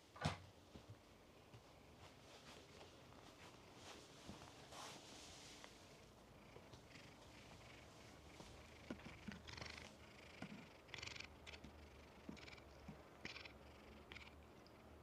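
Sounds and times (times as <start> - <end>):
cat purring: 5.3 - 14.6.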